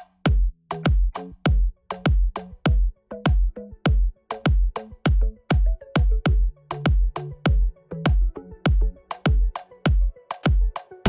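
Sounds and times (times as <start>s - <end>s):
electronic dance music: 0.0s - 11.0s.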